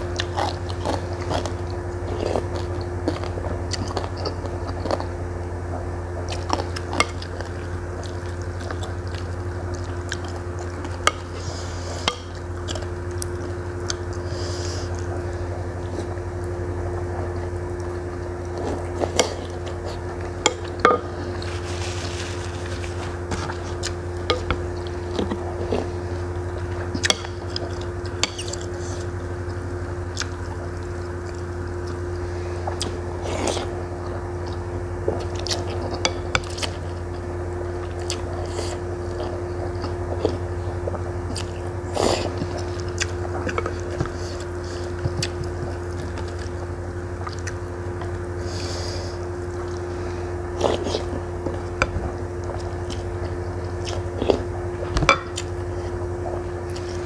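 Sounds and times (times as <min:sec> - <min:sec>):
chewing: 0:00.0 - 0:05.2, 0:05.8 - 0:48.8, 0:49.5 - 0:57.0
steady low hum: 0:00.0 - 0:57.0.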